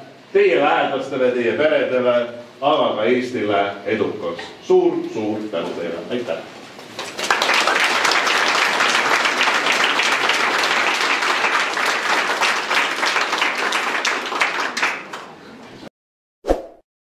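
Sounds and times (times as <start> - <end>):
audience applauding: 6.8 - 15.6.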